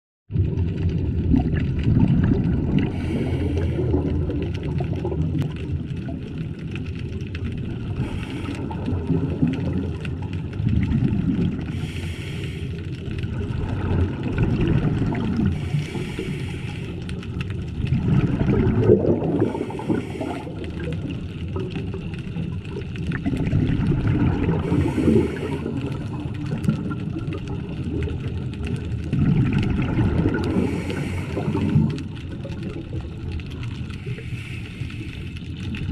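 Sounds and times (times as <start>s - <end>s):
exhaled bubbles hissing: 0.4s - 35.9s
regulator breathing underwater: 2.8s - 4.3s, 8.0s - 9.0s, 11.7s - 13.0s, 15.5s - 17.2s, 19.1s - 20.9s, 24.5s - 26.1s, 30.3s - 32.1s, 33.9s - 35.4s.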